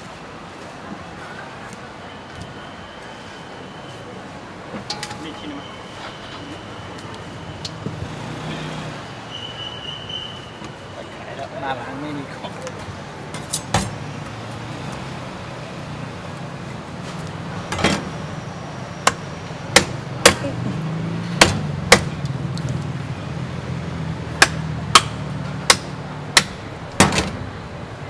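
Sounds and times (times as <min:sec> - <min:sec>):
cleaver chopping meat: 0:21.4 - 0:22.1, 0:24.4 - 0:26.6.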